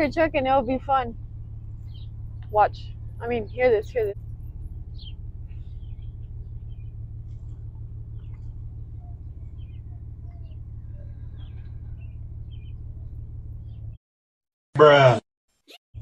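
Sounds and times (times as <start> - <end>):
truck engine running: 0.0 - 14.0
faint chirps and squeaks: 1.7 - 14.0.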